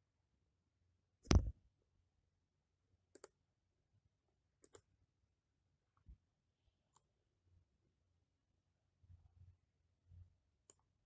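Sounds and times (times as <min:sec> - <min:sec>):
computer mouse clicks: 0:03.1 - 0:03.4, 0:04.6 - 0:04.9, 0:06.9 - 0:07.1, 0:10.6 - 0:10.9.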